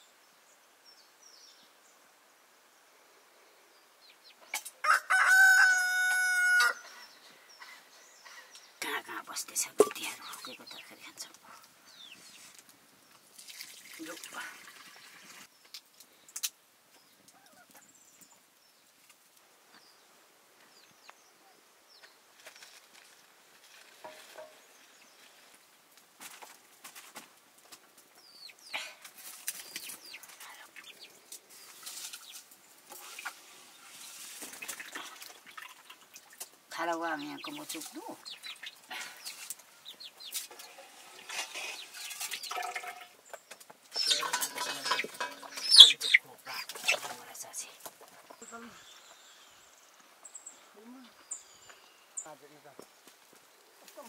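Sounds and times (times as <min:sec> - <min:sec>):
chickens clucking: 0:34.4 - 0:48.5.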